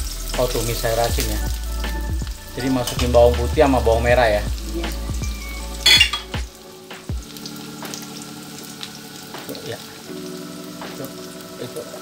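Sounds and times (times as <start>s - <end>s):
garlic frying in hot oil: 0.0s - 12.0s.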